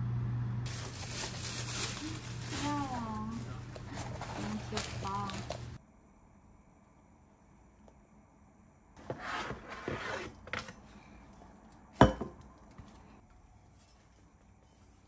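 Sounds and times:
cardboard and tissue paper rustling: 0.7 - 5.8.

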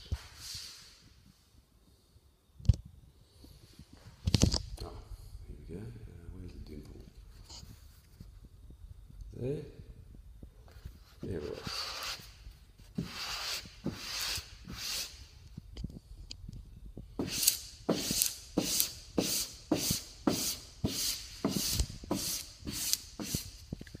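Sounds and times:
squeegee scraping on vinyl film: 17.2 - 23.6.

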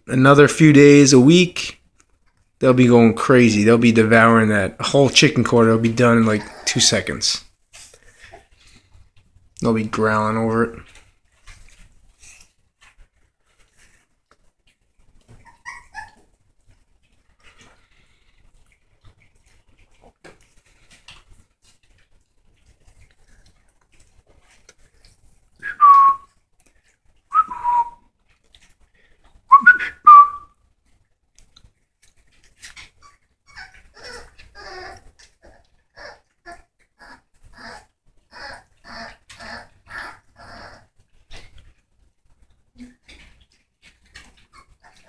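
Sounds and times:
puppies chewing: 0.4 - 29.7, 30.7 - 45.0
puppies whining: 5.7 - 7.4, 15.0 - 16.8, 32.8 - 41.6, 44.0 - 45.0.

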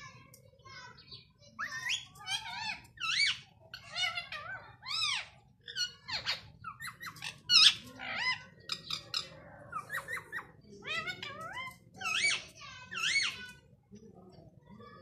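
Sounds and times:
parakeet squawking: 1.6 - 13.6.

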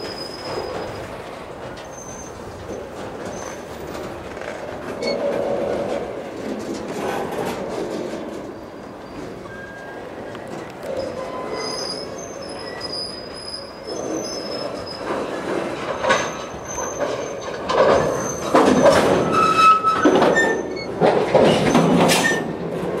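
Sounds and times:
steel wheels squealing: 0.0 - 5.8, 7.1 - 22.6
freight cars clanking and rattling: 0.0 - 23.0.

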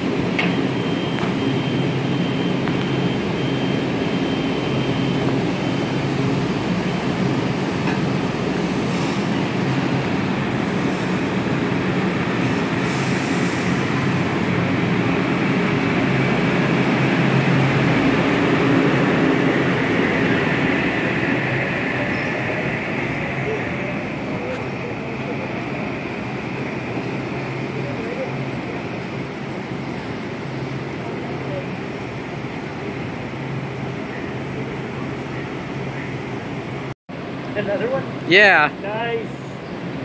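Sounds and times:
train equipment hum: 0.0 - 40.0
train pulling out: 0.0 - 40.0
short air hisses: 8.7 - 9.4, 12.4 - 13.9.

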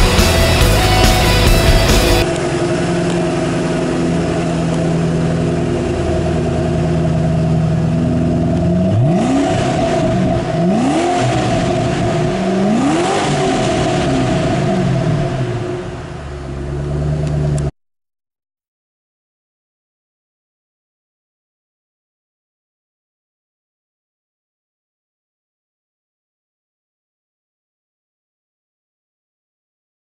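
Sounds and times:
car engine idling and revving: 0.0 - 17.8.

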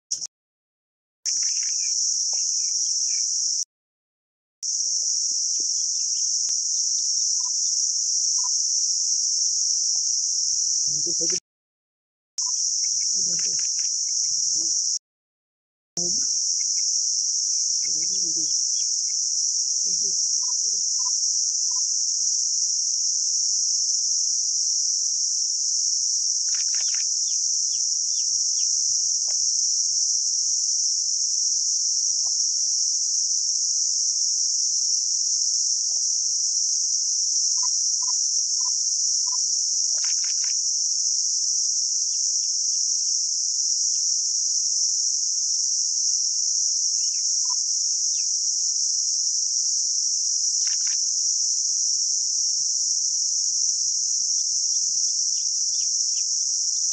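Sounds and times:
faint short chirps: 1.3 - 3.2, 26.5 - 27.1, 39.3 - 40.6, 50.6 - 51.0
insect chorus drone: 1.3 - 3.7, 4.6 - 11.4, 12.4 - 15.0, 16.0 - 56.9.

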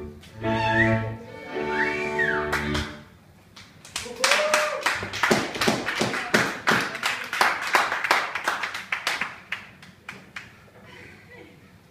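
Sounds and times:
hand claps: 3.6 - 10.6.

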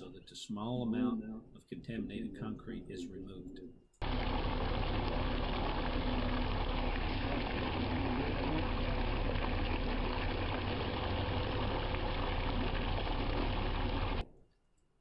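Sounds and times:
machinery engine running: 4.0 - 14.2.

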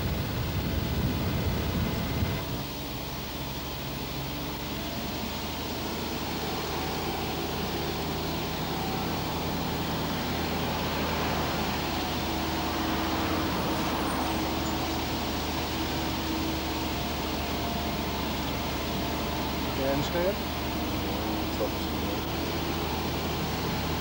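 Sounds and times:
car engine hum: 0.0 - 24.0
road and wind noise: 0.0 - 24.0.

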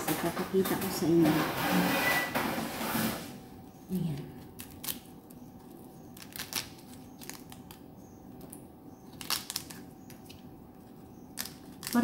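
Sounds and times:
fruit skin cracking and tearing: 4.2 - 12.0.

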